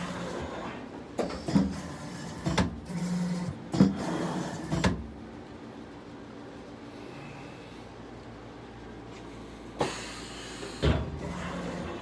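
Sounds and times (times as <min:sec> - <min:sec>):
printing press mechanical clunks: 0:00.0 - 0:05.2
steady machine hum: 0:00.0 - 0:12.0.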